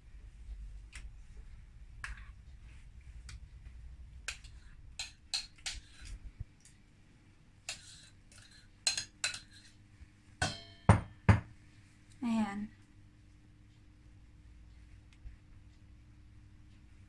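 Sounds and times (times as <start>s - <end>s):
metal spoon scraping glass bowl: 7.7s - 9.7s.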